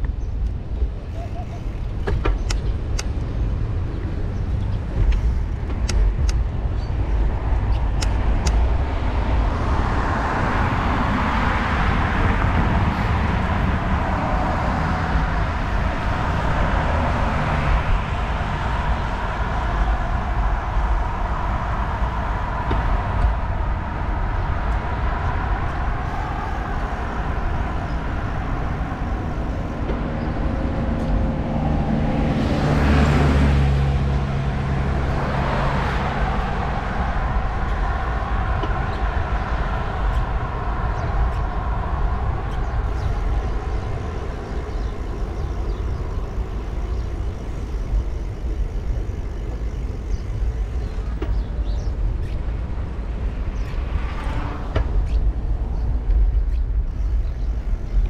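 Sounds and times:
traffic rumble: 0:00.0 - 0:58.0
vehicle passing close: 0:07.1 - 0:58.0.

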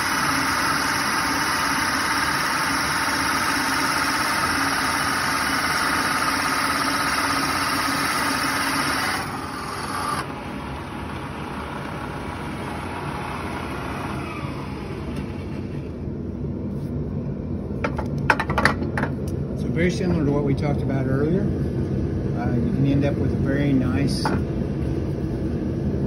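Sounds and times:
drill bit boring into wood: 0:00.0 - 0:15.9
machine running: 0:00.0 - 0:16.4.

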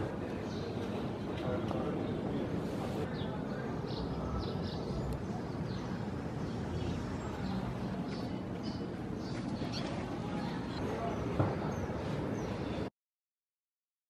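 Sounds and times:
birds chirping: 0:00.0 - 0:12.9.

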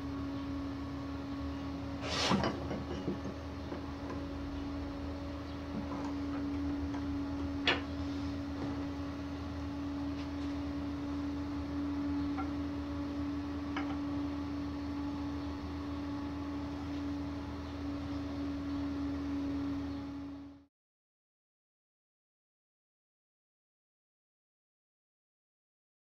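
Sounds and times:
electrical motor hum: 0:00.0 - 0:20.7.

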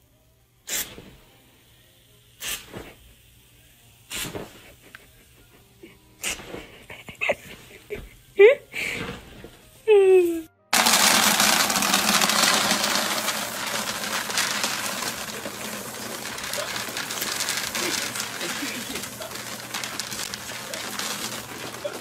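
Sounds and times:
kibble pouring into plastic bin: 0:10.8 - 0:22.0.

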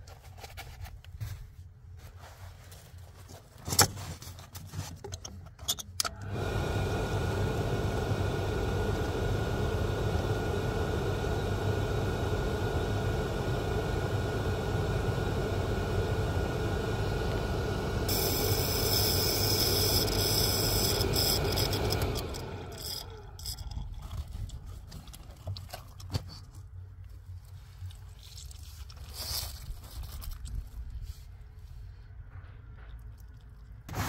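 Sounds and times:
oil boiler burner running: 0:06.0 - 0:24.5.

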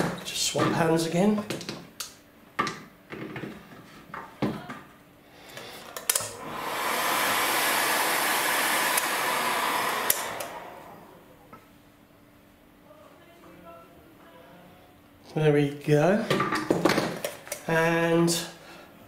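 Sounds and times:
heat gun blowing hot air: 0:05.7 - 0:11.2.

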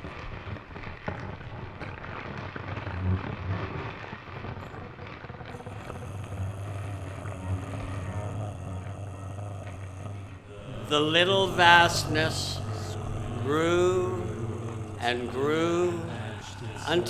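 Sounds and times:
rumbling crackling guitar noise: 0:00.0 - 0:17.0
low hum: 0:05.5 - 0:17.0.

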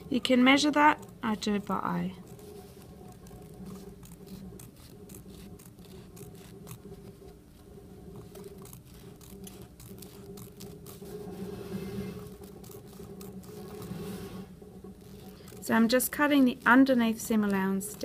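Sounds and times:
low steady hum: 0:00.0 - 0:18.0
scissors snipping fabric: 0:00.8 - 0:06.9, 0:08.3 - 0:11.0, 0:15.0 - 0:18.0.

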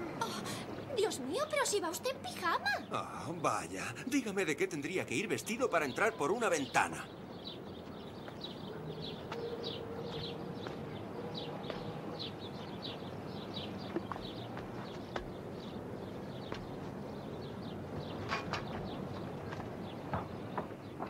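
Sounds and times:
steady background hiss: 0:00.0 - 0:08.7
small birds chirping: 0:00.0 - 0:21.0.

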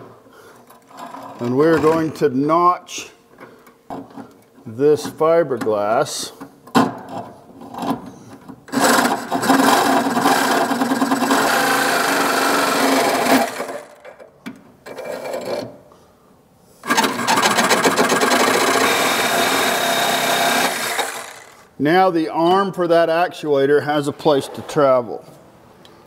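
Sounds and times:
power tool grinding fiberglass: 0:08.7 - 0:14.0, 0:16.8 - 0:21.7.

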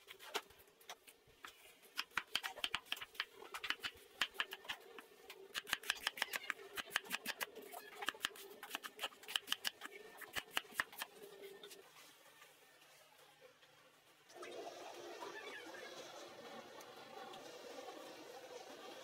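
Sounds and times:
cleaver chopping cabbage on wood: 0:01.9 - 0:04.8, 0:05.5 - 0:11.1.

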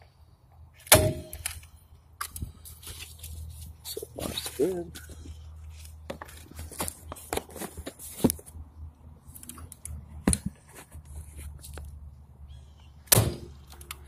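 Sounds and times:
handling rustles: 0:01.5 - 0:08.6, 0:09.3 - 0:12.0.

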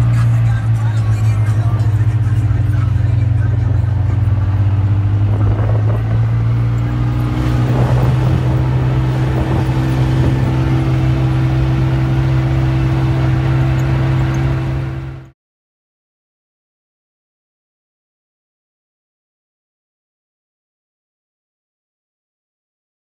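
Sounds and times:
vehicle engine droning: 0:00.0 - 0:15.4.

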